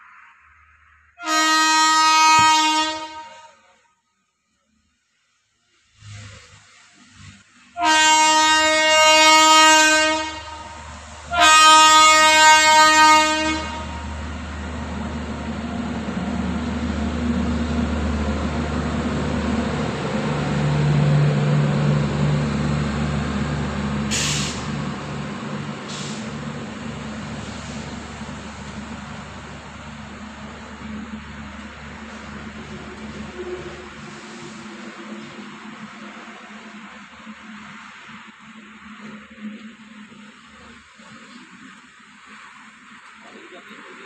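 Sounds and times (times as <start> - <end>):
train horn blasts: 1.2 - 4.0, 7.7 - 14.2
train rumbling past: 5.8 - 44.0.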